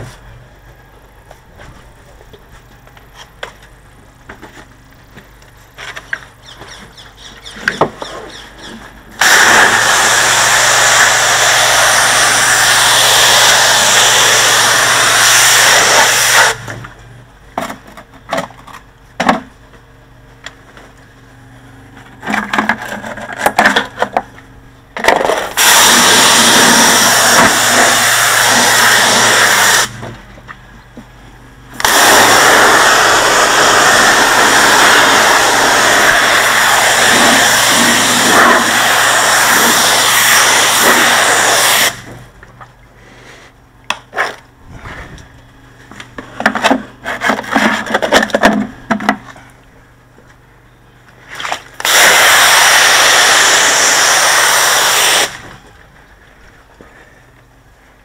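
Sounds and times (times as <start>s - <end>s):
pressure washer jet hissing: 9.2s - 16.7s, 25.6s - 30.0s, 31.8s - 42.0s, 51.8s - 55.5s
pressure washer motor hum: 9.2s - 17.0s, 25.0s - 30.3s, 31.7s - 42.3s, 51.7s - 55.6s.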